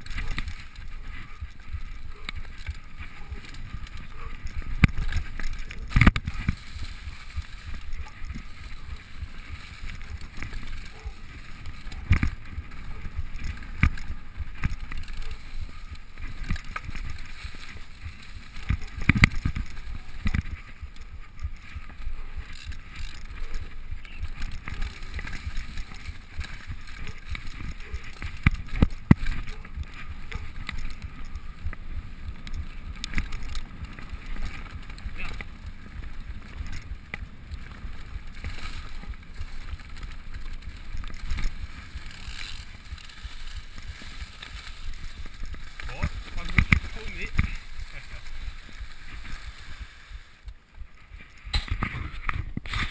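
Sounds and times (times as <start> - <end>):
bike knocking and rattling: 0.0 - 52.9
bike tyres rumbling on dirt: 0.0 - 52.9.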